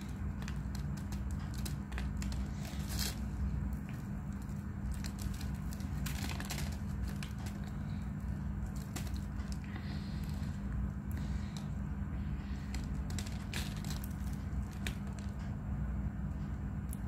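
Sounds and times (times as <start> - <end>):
chalk crunching: 0.0 - 11.6
steady low hum: 0.0 - 17.0.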